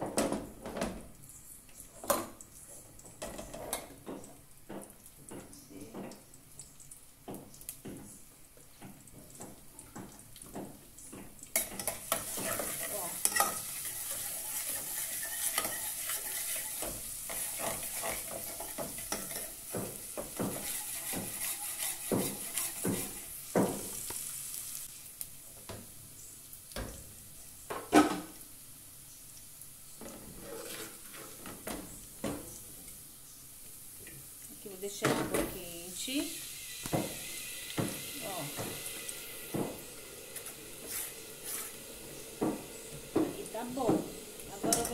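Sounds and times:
seasoning sizzling in hot oil: 0:01.2 - 0:44.9
metal spoon scraping a pan: 0:11.6 - 0:24.0, 0:30.0 - 0:31.7, 0:40.4 - 0:41.8, 0:44.5 - 0:44.9
metal knock on pan: 0:43.2 - 0:44.9.

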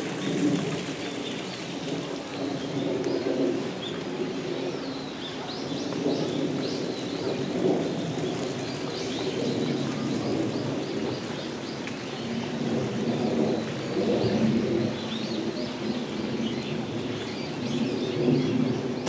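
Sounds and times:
stream flowing: 0:00.0 - 0:02.8.

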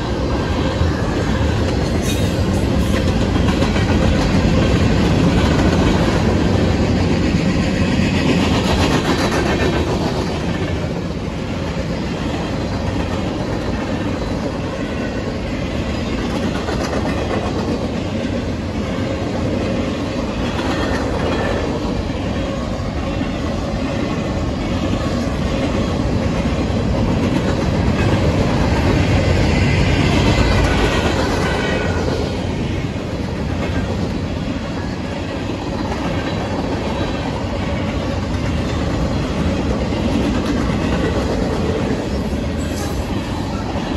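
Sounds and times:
train wheels rumbling on rails: 0:00.0 - 0:43.9
wheels clacking over rail joints: 0:00.0 - 0:43.9.

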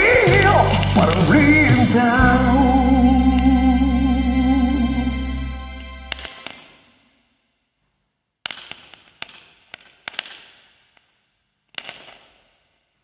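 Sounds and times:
backing music: 0:00.0 - 0:06.6
sharp pops and clicks with echo: 0:08.4 - 0:12.9.

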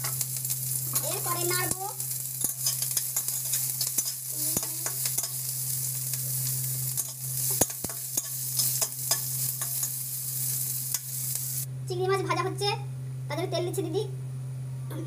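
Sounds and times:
onions sizzling in hot oil: 0:00.0 - 0:11.7
steady low hum: 0:00.0 - 0:15.0
spatula scraping a wok: 0:02.3 - 0:11.6.

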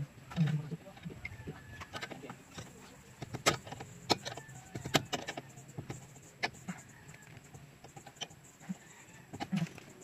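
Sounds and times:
metal tools clinking: 0:01.8 - 0:06.8.

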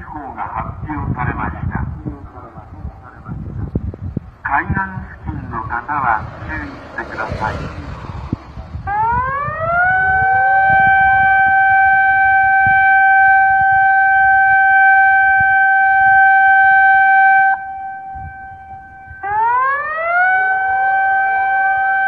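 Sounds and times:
warning siren wailing: 0:05.0 - 0:22.0.

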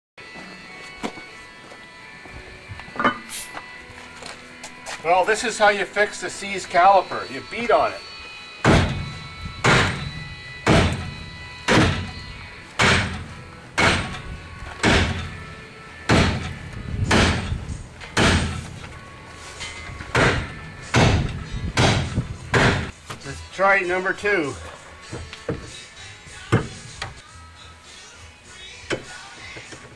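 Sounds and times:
sledgehammer blows on metal: 0:08.6 - 0:12.2, 0:12.8 - 0:14.2, 0:14.8 - 0:15.4, 0:16.1 - 0:18.8, 0:19.6 - 0:22.9.

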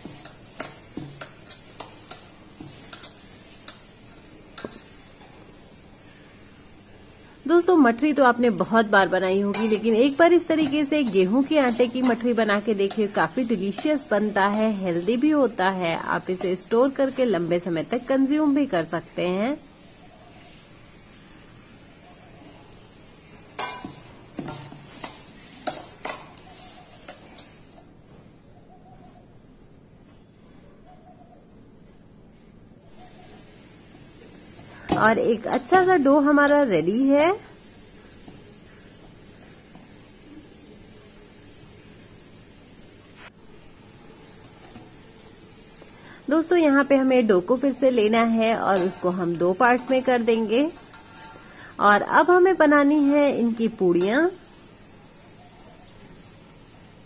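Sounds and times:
hand working dough in metal bowl: 0:00.0 - 0:05.4, 0:07.5 - 0:19.4, 0:23.5 - 0:27.9, 0:34.2 - 0:37.4, 0:44.0 - 0:54.8.

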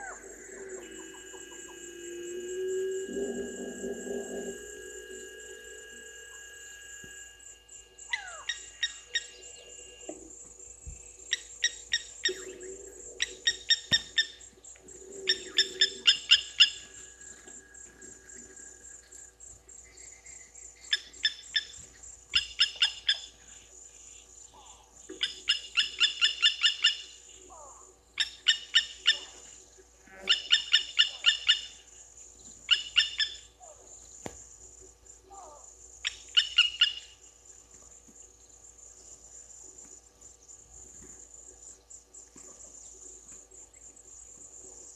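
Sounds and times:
lapwing calling: 0:00.0 - 0:07.4, 0:08.0 - 0:10.2, 0:11.3 - 0:17.6, 0:20.8 - 0:23.6, 0:30.1 - 0:31.8, 0:32.7 - 0:33.9, 0:35.3 - 0:37.2
high insect buzz: 0:00.0 - 0:27.8.

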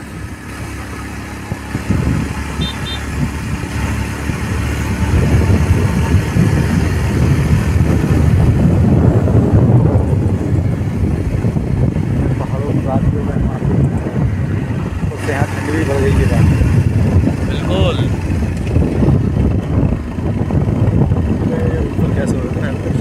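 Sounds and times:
motorcycle engine rumble: 0:00.0 - 0:23.0.

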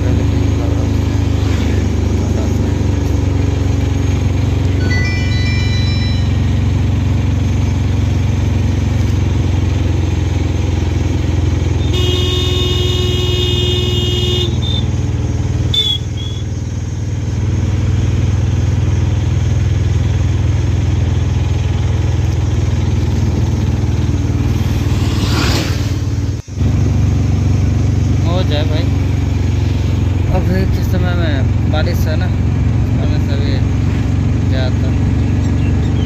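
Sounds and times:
auto-rickshaw engine running: 0:00.0 - 0:36.0
short horn beep: 0:04.8 - 0:06.6
vehicle horn: 0:11.8 - 0:15.0, 0:15.7 - 0:16.5.

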